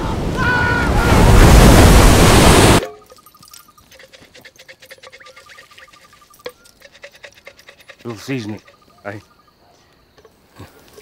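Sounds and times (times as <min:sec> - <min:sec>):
ocean wave breaking: 0:00.0 - 0:02.8
insect-like chirping: 0:02.8 - 0:11.0.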